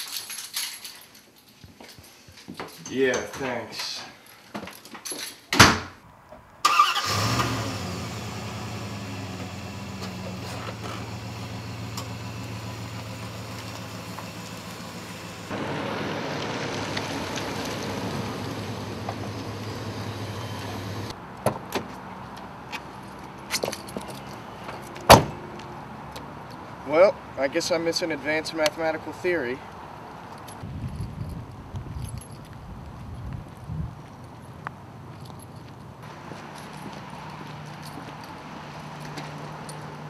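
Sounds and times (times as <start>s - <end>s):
door banging shut: 5.5s - 6.0s, 25.1s - 25.4s
vehicle engine starting and running: 6.6s - 21.2s, 36.0s - 40.0s.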